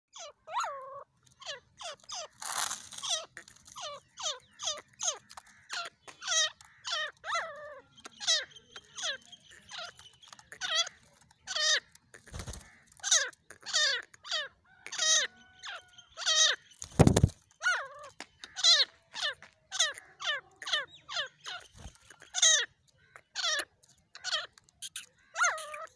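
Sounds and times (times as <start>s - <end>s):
francolin squeaky calls: 0.1s - 25.9s
wing flapping: 12.2s - 12.8s, 16.8s - 17.4s.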